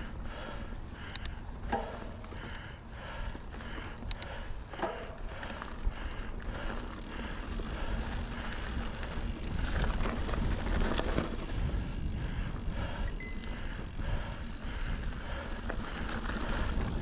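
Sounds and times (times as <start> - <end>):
bike tyres on dirt: 0.0 - 17.0
wind rumble on microphone: 7.3 - 17.0.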